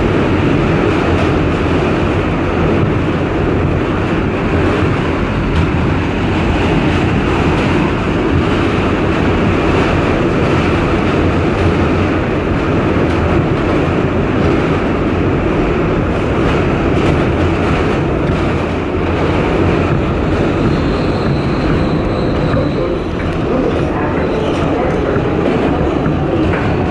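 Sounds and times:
subway car wheels rumbling: 0.0s - 26.9s.

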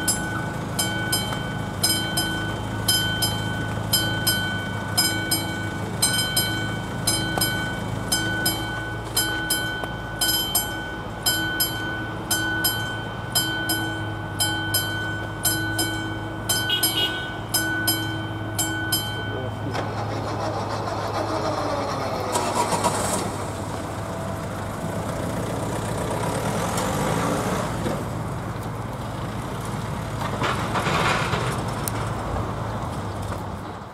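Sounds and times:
mechanical warning bell: 0.0s - 20.5s
train rumble: 0.0s - 27.1s.

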